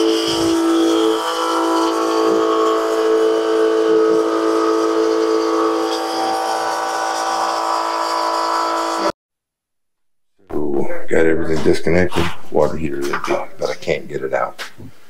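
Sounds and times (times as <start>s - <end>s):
water pump whining: 0.0s - 9.1s.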